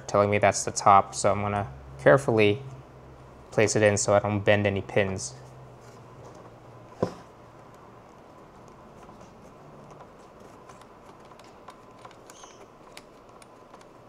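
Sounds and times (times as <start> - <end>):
collar turning ticks and scrapes: 7.5 - 14.0.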